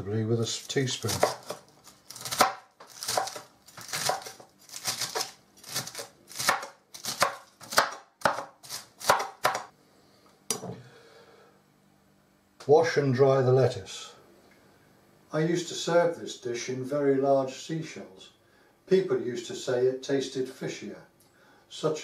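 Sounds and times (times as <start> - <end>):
knife chopping on cutting board: 1.0 - 9.7.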